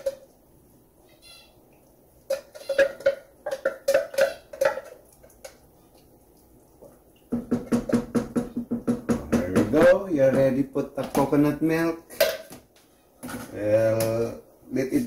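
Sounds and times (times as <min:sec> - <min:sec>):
metal tapping on cooking pot: 0:02.2 - 0:05.7, 0:07.3 - 0:10.6.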